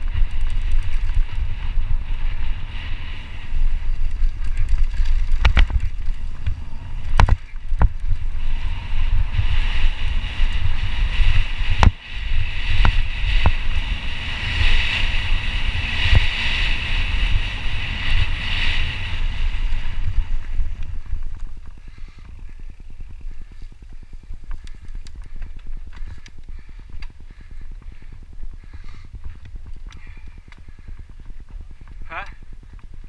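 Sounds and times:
sharp clicks and rattles: 0.0 - 1.7, 3.6 - 8.3, 23.8 - 27.2
bike tyres rolling on dirt: 0.0 - 33.0
wind on microphone: 0.0 - 33.0.

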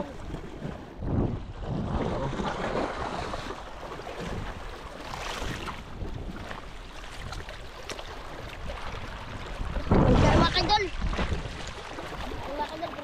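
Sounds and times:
sea water washing: 0.0 - 13.0
wind on microphone: 0.0 - 13.0.

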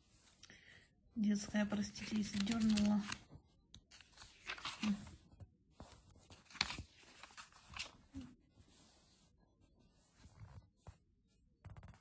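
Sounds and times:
glossy paper pages rustling: 1.4 - 11.0
paper crackles: 1.7 - 8.4.

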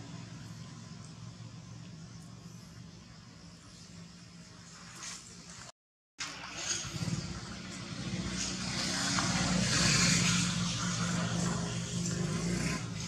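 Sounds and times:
vehicle engine humming: 0.0 - 5.5.

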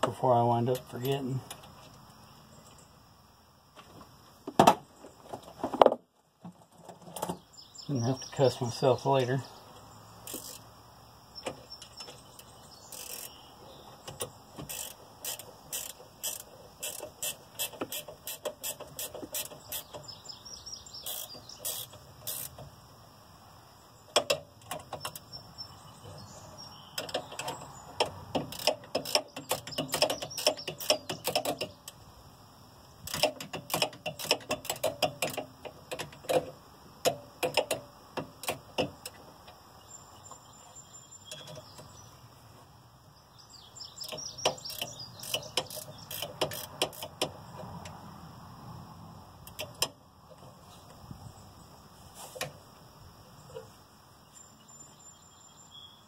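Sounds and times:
socket ratchet clicking: 10.3 - 10.6, 12.9 - 13.4, 14.2 - 19.9, 21.0 - 22.6, 27.0 - 32.0, 33.0 - 36.5, 44.0 - 47.9.

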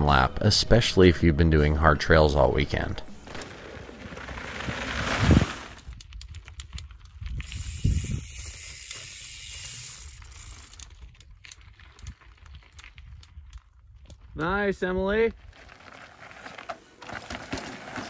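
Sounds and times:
bike tyres skidding on dirt: 3.1 - 5.9, 7.2 - 10.9, 15.4 - 18.0.

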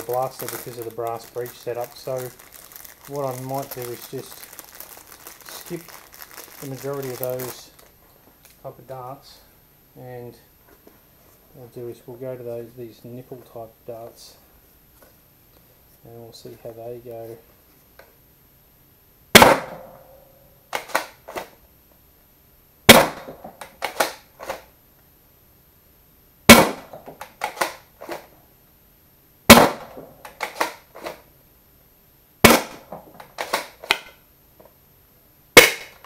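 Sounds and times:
toy blaster firing darts: 35.6 - 36.0.

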